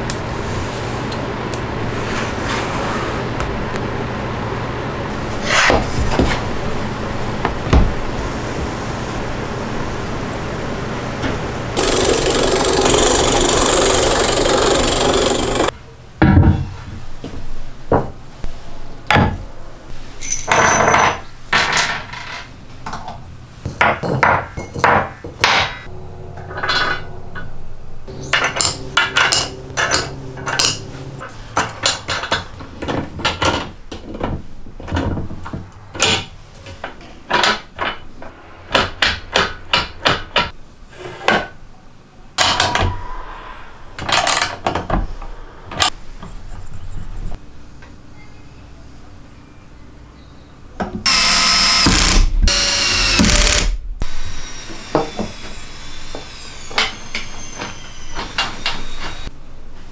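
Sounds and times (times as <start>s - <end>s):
ratchet wrench tightening bolts: 11.8s - 15.7s.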